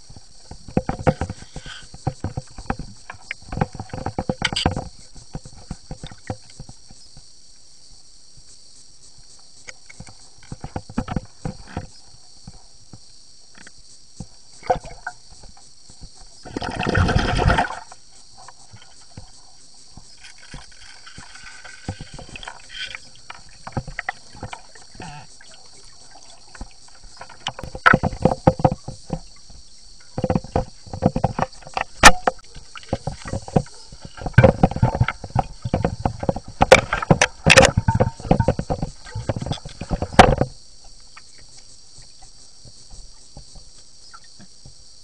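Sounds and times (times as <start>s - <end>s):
underwater clicks and knocks: 0.1s - 6.9s, 9.6s - 12.6s, 20.0s - 44.8s.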